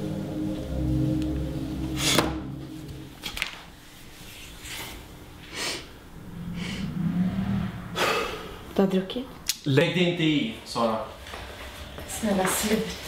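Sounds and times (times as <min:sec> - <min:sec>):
low background music: 0:00.0 - 0:04.0.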